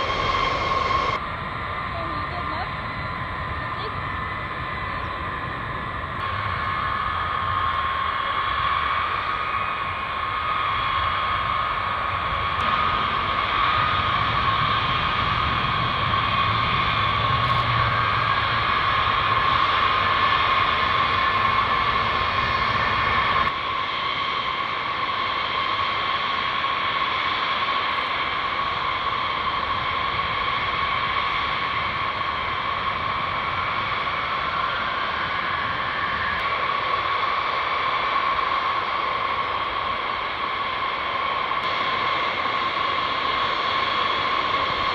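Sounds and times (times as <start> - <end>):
low rumble: 0.0 - 23.6
jet engines whining: 0.0 - 44.9.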